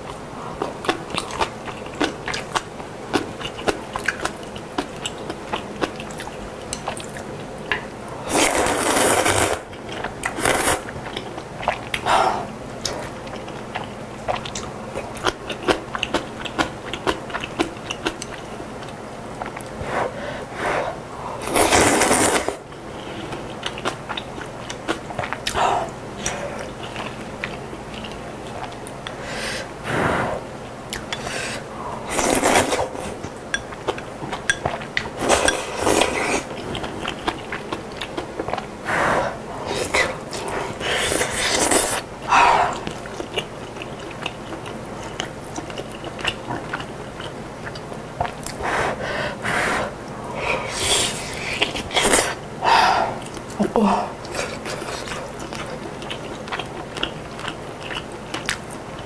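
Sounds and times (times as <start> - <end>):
chewing with wet mouth clicks: 0.0 - 7.9, 9.7 - 12.1, 12.8 - 19.8, 22.7 - 29.2, 30.9 - 31.3, 32.4 - 38.8, 42.7 - 48.6, 53.2 - 53.6, 54.2 - 59.0
loud slurps: 19.8 - 22.6.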